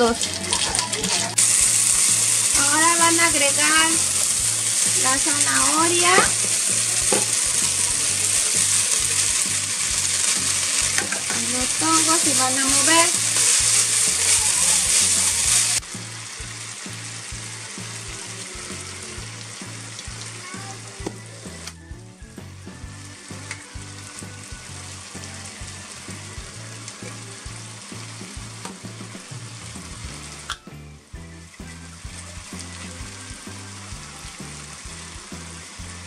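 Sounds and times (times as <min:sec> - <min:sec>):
chopsticks stirring: 0:00.0 - 0:15.8
vegetables sizzling in a frying pan: 0:00.0 - 0:21.6, 0:23.1 - 0:30.5, 0:31.8 - 0:36.0.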